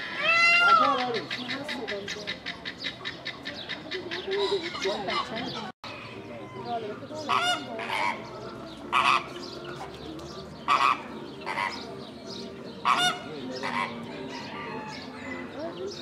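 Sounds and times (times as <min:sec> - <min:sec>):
large waterbirds honking: 0:06.5 - 0:10.0, 0:10.6 - 0:12.0, 0:12.8 - 0:15.7.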